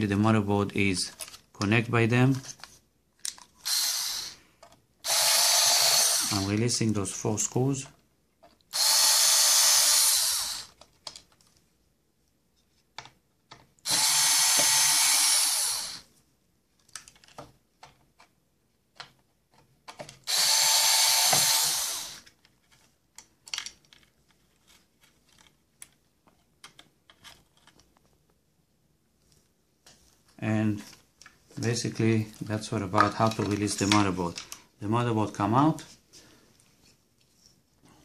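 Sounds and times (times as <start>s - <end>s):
power drill backing out screws: 13.9s - 16.0s, 20.3s - 22.2s.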